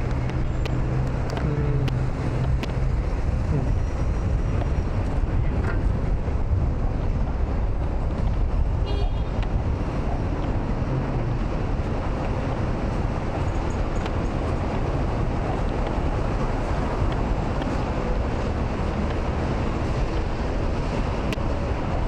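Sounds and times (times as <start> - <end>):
traffic noise with low rumble: 0.0 - 22.0.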